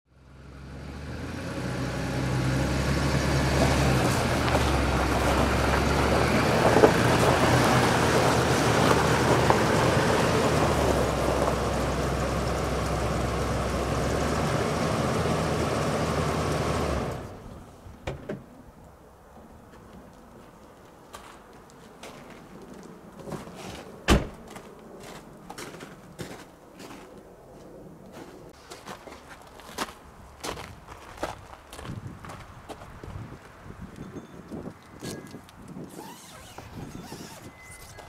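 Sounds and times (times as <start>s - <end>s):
car engine idling: 4.3s - 17.6s.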